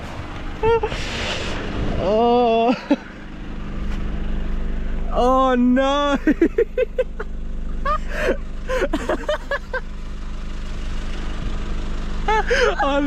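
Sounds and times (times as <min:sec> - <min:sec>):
engine idling: 0:00.0 - 0:13.0
people laughing: 0:02.5 - 0:03.2, 0:06.1 - 0:09.9, 0:12.3 - 0:13.0.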